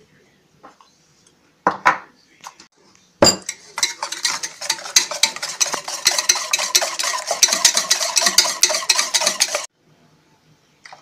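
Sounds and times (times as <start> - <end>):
whisk clicking against pot: 3.4 - 9.7.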